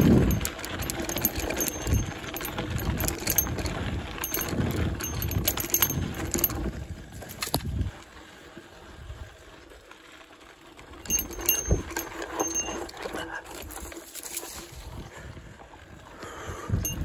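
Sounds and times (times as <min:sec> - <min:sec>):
bike rattling clicks: 0:00.0 - 0:08.0, 0:10.8 - 0:14.8, 0:16.8 - 0:17.0.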